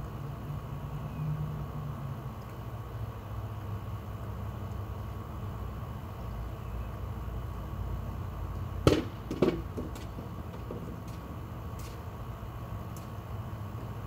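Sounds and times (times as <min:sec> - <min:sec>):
steady low rumble: 0:01.6 - 0:14.0
sharp knocks: 0:08.9 - 0:11.2.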